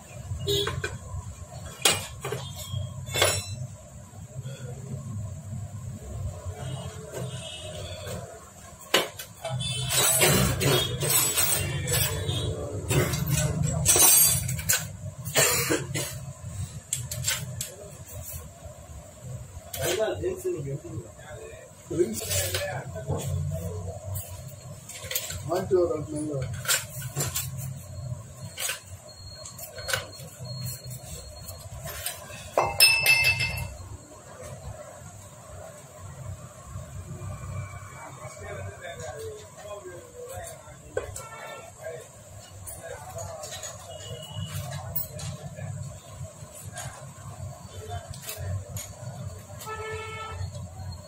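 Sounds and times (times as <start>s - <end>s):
metallic clinks of engine parts: 0.5s - 3.9s, 9.0s - 18.2s, 24.1s - 34.0s
metal tool clinking on engine casing: 1.7s - 3.8s, 9.9s - 12.3s, 12.9s - 15.1s, 31.6s - 33.8s.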